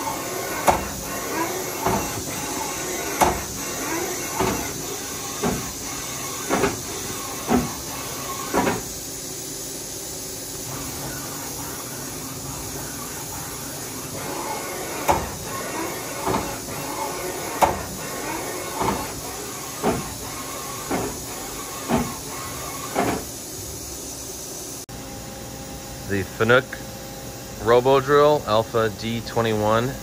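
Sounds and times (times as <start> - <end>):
sharp machine clunk: 0.0 - 8.9, 12.6 - 23.3
machine table moving: 0.0 - 9.0, 10.6 - 23.3.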